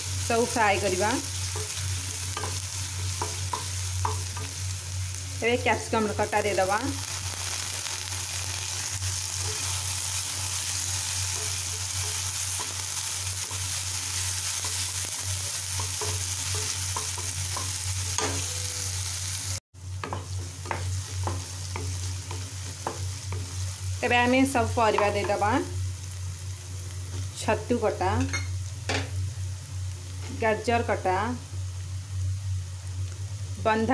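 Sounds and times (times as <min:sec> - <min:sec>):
spatula stirring and scraping pan: 0:00.0 - 0:04.7, 0:07.5 - 0:18.6, 0:19.9 - 0:25.5
vegetables sizzling in hot oil: 0:00.0 - 0:33.9.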